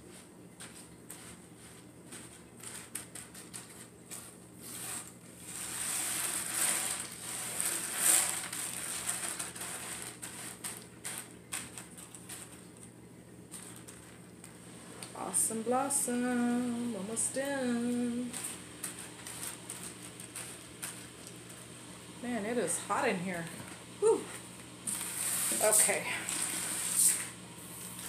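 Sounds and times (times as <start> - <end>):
dry beans rattling into strainer: 1.1 - 12.8, 17.2 - 21.8, 24.8 - 27.4.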